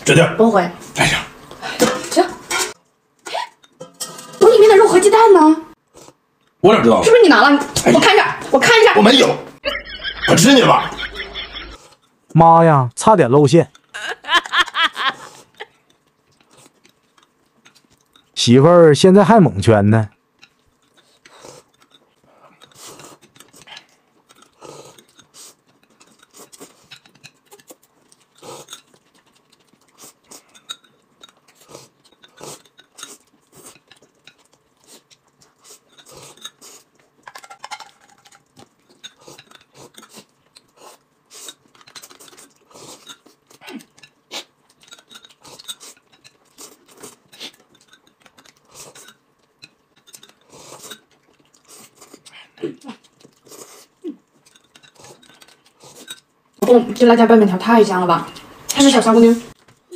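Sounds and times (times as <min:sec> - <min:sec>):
slurping and chewing: 0:05.7 - 0:06.6, 0:15.0 - 0:18.4, 0:20.2 - 0:56.6
chopsticks clicking and scraping: 0:06.0 - 0:06.6, 0:13.7 - 0:14.0, 0:14.7 - 0:18.5, 0:20.1 - 0:57.2.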